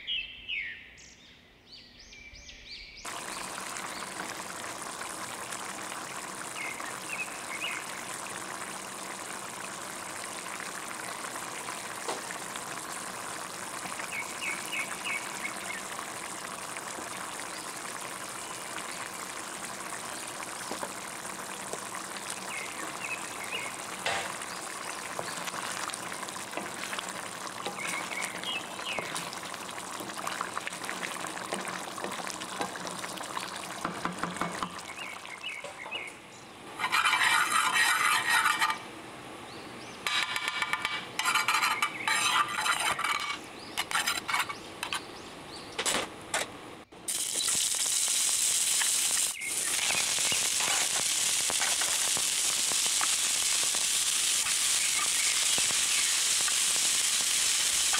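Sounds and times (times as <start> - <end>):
stew bubbling with pops: 3.1 - 36.1, 47.1 - 57.9.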